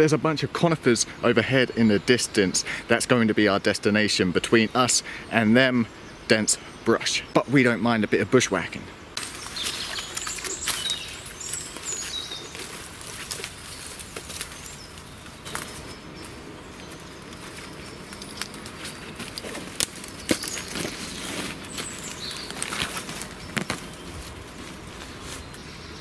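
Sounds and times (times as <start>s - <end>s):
birds chirping: 0.0s - 26.0s
grass and brush rustling: 9.1s - 26.0s
twigs snapping: 9.2s - 25.6s
footsteps through undergrowth: 9.2s - 25.8s.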